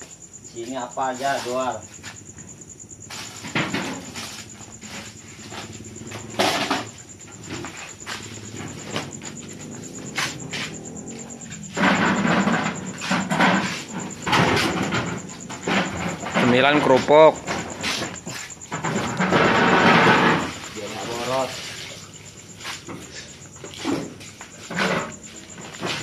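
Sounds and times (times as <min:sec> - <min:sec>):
plastic jugs clattering: 0:11.6 - 0:22.1.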